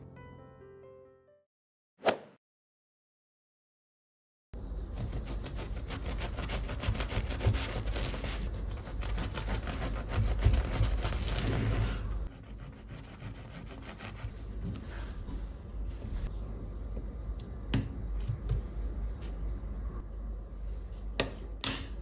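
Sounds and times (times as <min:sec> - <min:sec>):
bread knife sawing through bread: 0:04.9 - 0:14.3.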